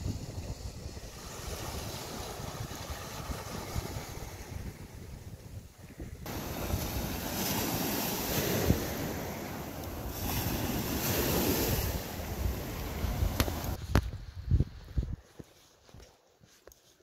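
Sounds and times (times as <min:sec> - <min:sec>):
waves breaking on pebble beach: 0:00.0 - 0:04.9, 0:06.2 - 0:13.8
wind buffeting microphone: 0:00.0 - 0:15.4.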